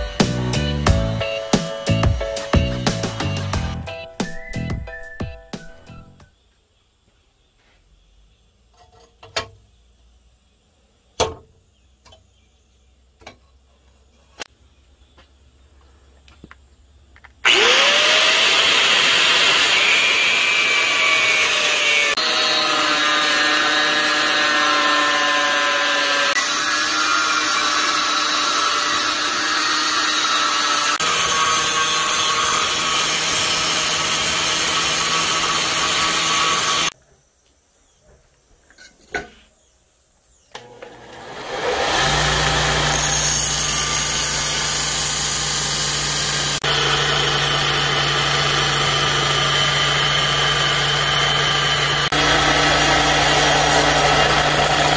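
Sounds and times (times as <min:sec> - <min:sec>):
angle grinder cutting steel: 0:00.0 - 0:03.8, 0:17.4 - 0:37.0, 0:40.6 - 0:54.9.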